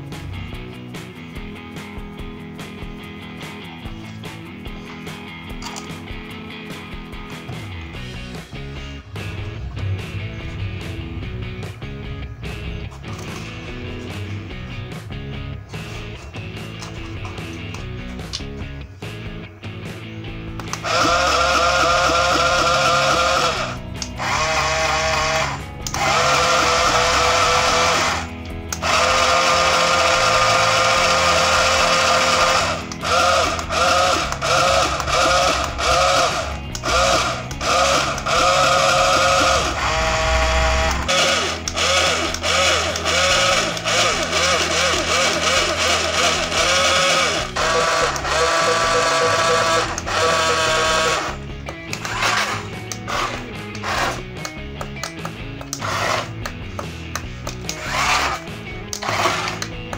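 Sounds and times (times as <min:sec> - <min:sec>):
small gear motors whining: 0:20.6 - 0:54.3, 0:55.6 - 0:56.6, 0:57.2 - 0:59.9.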